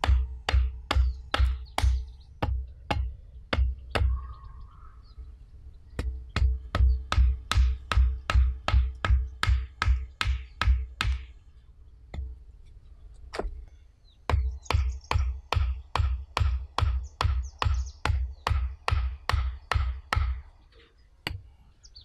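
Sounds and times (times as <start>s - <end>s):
hatchet pounding wooden stake: 0.0s - 4.2s, 6.0s - 11.4s, 14.3s - 20.5s.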